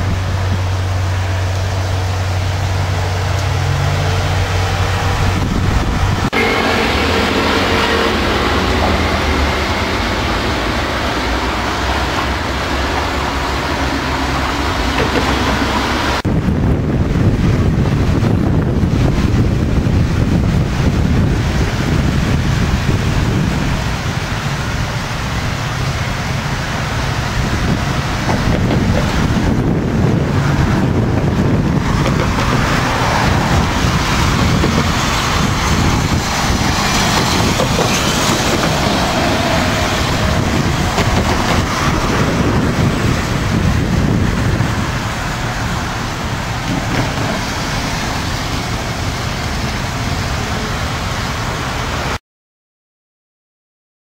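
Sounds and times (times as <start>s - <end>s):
wind buffeting microphone: 0.0s - 52.0s
rushing hiss: 20.1s - 52.2s.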